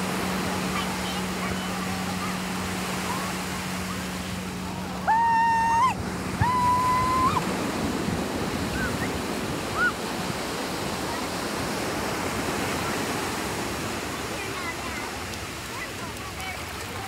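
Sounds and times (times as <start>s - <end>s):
ocean surf breaking: 0.0s - 17.0s
long high-pitched shouts: 5.0s - 7.4s
short high cries: 5.0s - 7.4s
wind on microphone: 5.2s - 13.0s.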